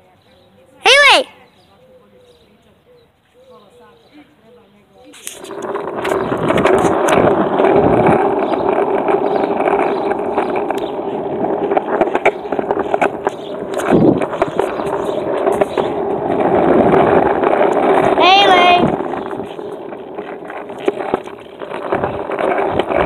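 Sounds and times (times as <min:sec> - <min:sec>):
skateboard wheels rolling: 0:05.0 - 0:23.0
wheels clacking over cracks: 0:05.0 - 0:23.0.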